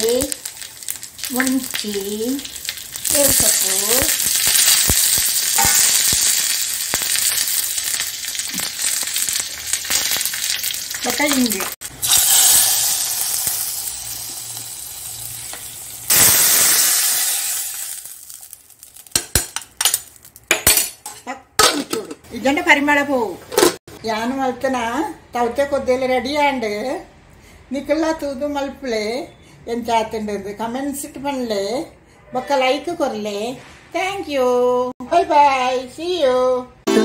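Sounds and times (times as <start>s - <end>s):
spices sizzling in hot oil: 0.0s - 21.1s.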